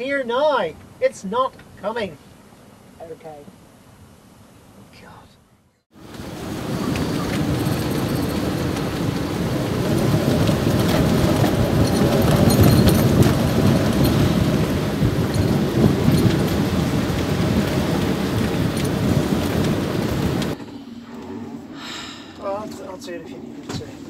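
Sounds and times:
rain: 5.9s - 20.6s
wind buffeting microphone: 6.0s - 21.8s.

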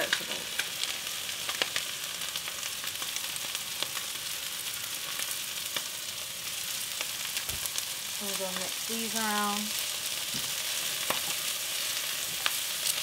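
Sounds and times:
sharp pops and crackles: 0.0s - 4.1s, 7.3s - 7.8s, 10.2s - 11.5s
stir-fry pan sizzling: 0.0s - 13.0s.

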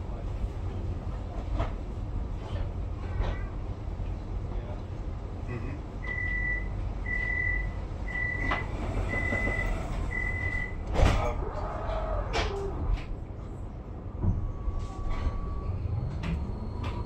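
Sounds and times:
tram rumble: 0.0s - 17.0s
high door warning beeps: 6.0s - 10.9s
sliding doors clunking shut: 8.1s - 11.4s.

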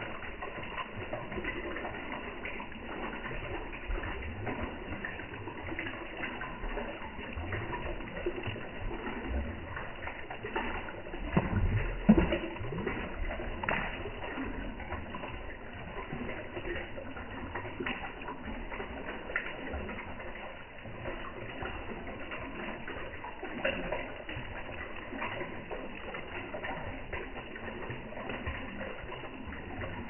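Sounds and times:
fish splashing and slurping water: 0.0s - 30.0s.

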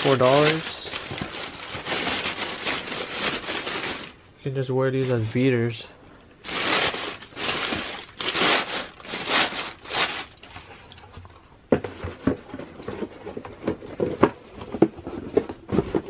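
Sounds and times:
tissue paper rustling and crinkling: 0.0s - 4.2s, 5.0s - 5.8s, 6.4s - 10.9s.

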